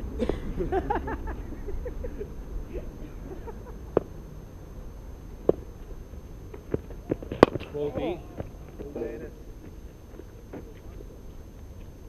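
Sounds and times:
cricket balls being struck: 3.4 - 4.2, 5.4 - 9.0.

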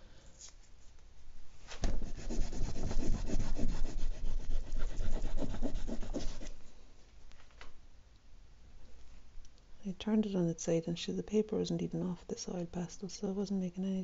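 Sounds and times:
pastel rubbing on paper: 1.9 - 6.6.

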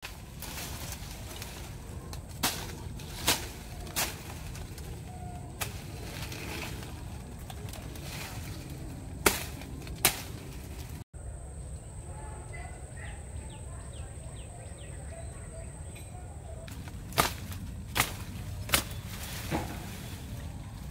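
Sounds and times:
machete chopping dry grass: 0.0 - 4.9, 9.2 - 10.9, 16.7 - 20.2
vegetation rustling: 0.0 - 11.1, 16.4 - 20.9.

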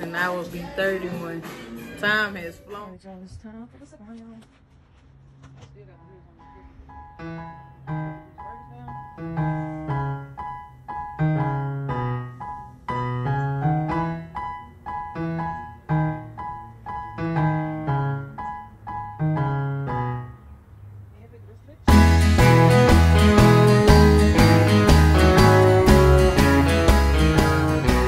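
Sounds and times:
piano music: 6.3 - 21.0, 21.9 - 28.0.

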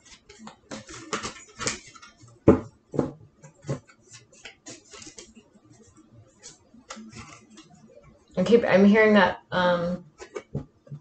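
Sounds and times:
cards being shuffled: 0.0 - 2.3, 3.7 - 5.4, 6.4 - 7.7.

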